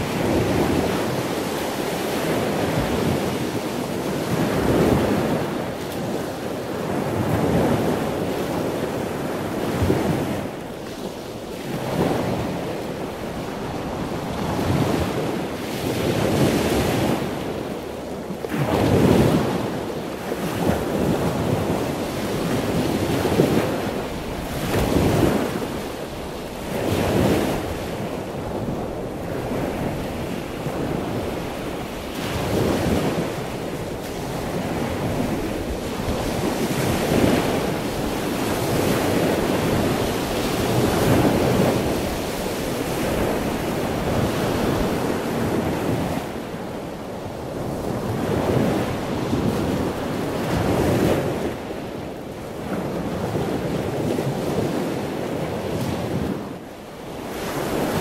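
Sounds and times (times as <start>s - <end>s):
sea waves breaking on shore: 0.0s - 58.0s.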